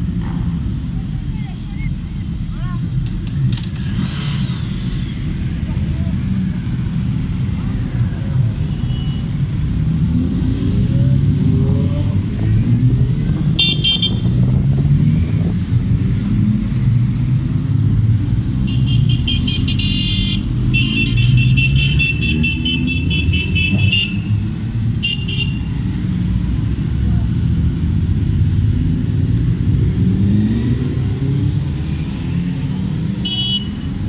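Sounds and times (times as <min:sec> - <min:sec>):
motorcycle engines passing: 0:00.0 - 0:34.0
horns honking: 0:13.5 - 0:14.4, 0:18.6 - 0:25.8, 0:33.2 - 0:34.0.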